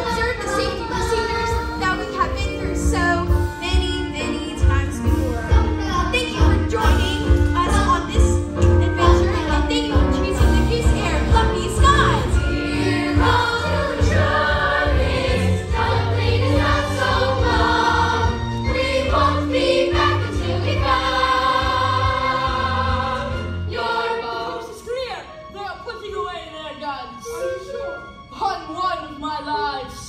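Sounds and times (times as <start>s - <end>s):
instrumental accompaniment: 0.0s - 29.0s
chorus singing: 10.4s - 24.9s.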